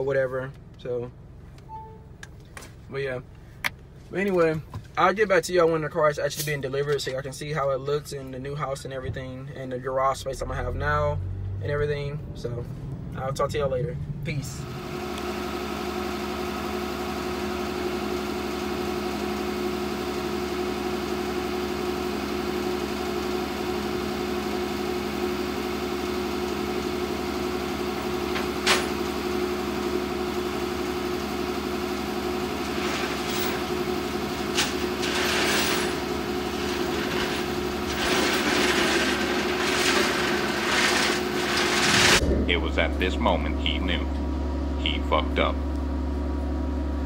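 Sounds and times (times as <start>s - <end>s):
truck engine idling: 12.0s - 47.0s.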